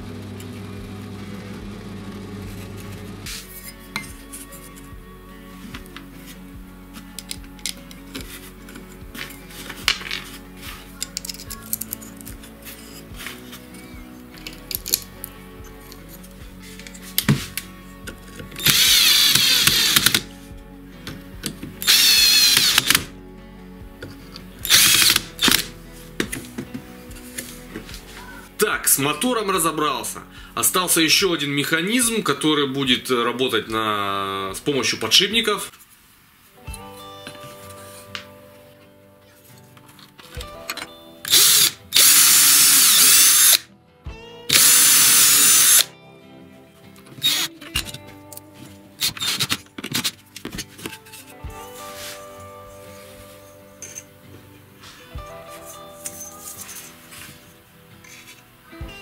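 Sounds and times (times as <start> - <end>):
cordless drill motor whining: 18.6 - 20.2, 21.8 - 23.1, 24.6 - 25.7, 41.3 - 43.6, 44.5 - 45.9, 47.2 - 47.5, 49.0 - 49.5.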